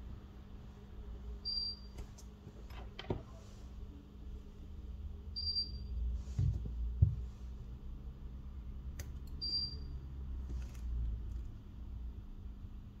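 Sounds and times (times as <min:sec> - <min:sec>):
soft thump: 0:06.4 - 0:07.3.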